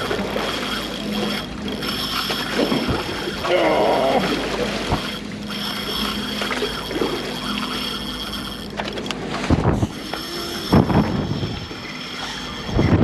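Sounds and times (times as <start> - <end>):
boat machinery humming: 0.0 - 13.0
wind buffeting microphone: 12.6 - 13.0.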